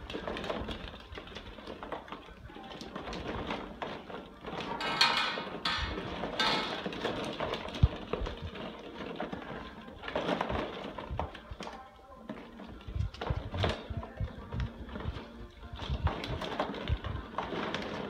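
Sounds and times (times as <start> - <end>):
plastic balls clattering: 0.0 - 18.0.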